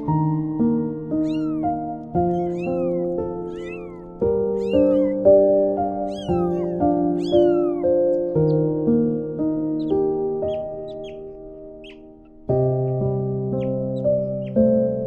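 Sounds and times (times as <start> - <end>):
gentle background music: 0.0 - 15.0
kittens mewing: 1.1 - 8.3.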